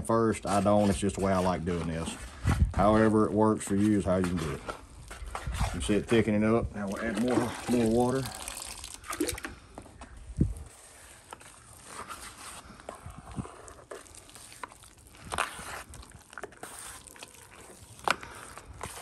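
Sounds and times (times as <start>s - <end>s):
drywall knife scraping in metal pan: 0.3s - 6.4s, 16.5s - 17.8s.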